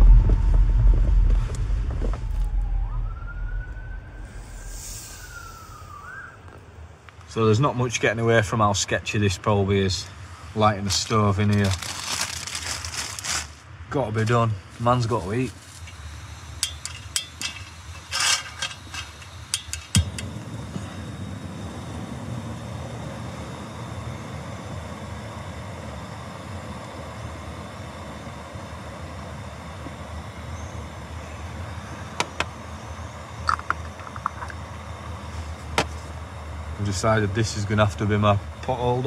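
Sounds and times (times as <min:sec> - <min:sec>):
gas burner hissing: 0:00.0 - 0:39.0
stove igniter clicks: 0:16.6 - 0:20.3.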